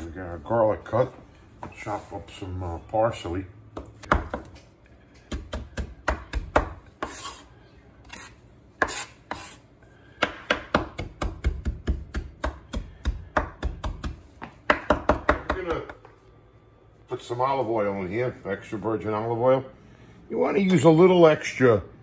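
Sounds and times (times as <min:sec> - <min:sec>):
knife chopping on wooden board: 0:05.3 - 0:07.4, 0:08.2 - 0:09.6, 0:10.2 - 0:15.8.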